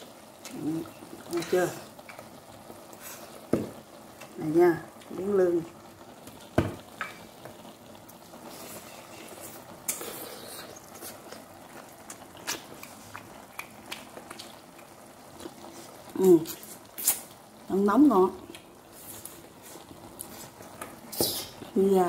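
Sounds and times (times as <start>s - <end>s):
quiet chewing: 9.8s - 17.4s, 18.4s - 21.5s.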